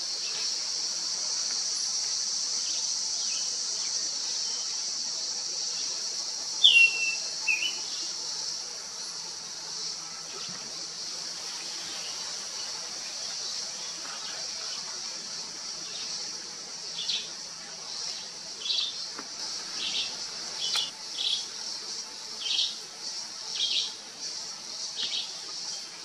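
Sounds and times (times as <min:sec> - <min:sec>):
high insect buzz: 0:00.0 - 0:26.0
bird whistling: 0:06.6 - 0:07.8.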